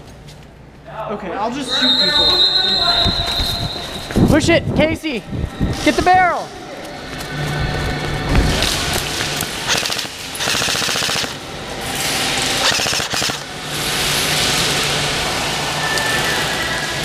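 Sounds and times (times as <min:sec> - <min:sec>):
airsoft rifle bursts: 0:09.7 - 0:11.4, 0:12.6 - 0:13.4.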